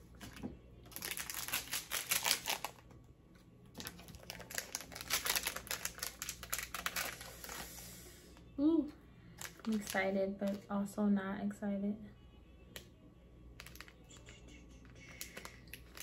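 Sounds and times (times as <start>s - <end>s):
plastic packet crinkling: 0.9s - 2.9s, 3.8s - 7.7s, 9.4s - 10.7s, 13.6s - 14.3s, 14.9s - 16.0s.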